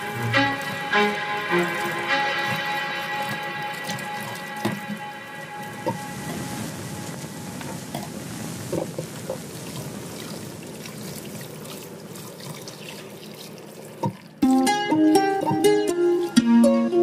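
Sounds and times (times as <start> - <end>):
plucked-string music: 0.0 - 8.1, 14.4 - 17.0
tap water splashing into bowl: 12.4 - 14.7.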